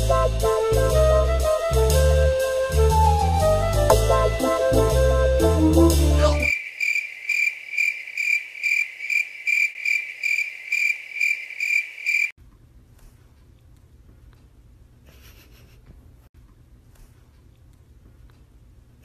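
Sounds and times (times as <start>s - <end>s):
band music: 0.0s - 6.5s
cricket chirping: 6.4s - 12.4s
faint room noise: 12.4s - 19.0s.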